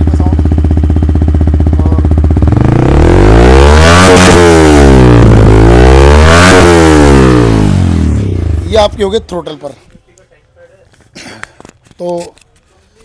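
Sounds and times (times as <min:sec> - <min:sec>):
motorcycle engine idling and revving: 0:00.0 - 0:09.7.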